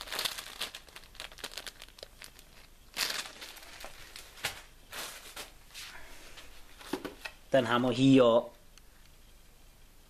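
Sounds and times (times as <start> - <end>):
plastic packaging rustling: 0.0 - 5.6.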